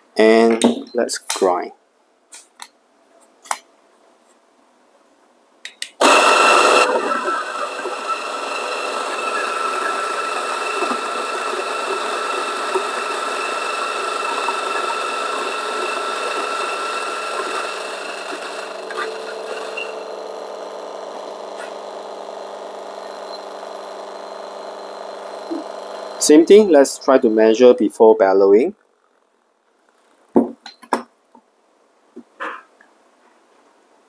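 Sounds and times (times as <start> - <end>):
coffee grinder grinding beans: 6.0 - 27.4.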